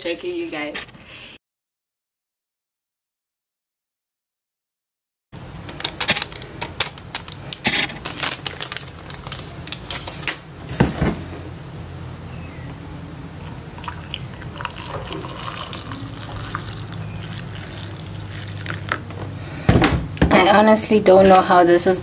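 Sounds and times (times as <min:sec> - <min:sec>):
water poured into a mug: 0:13.4 - 0:19.0.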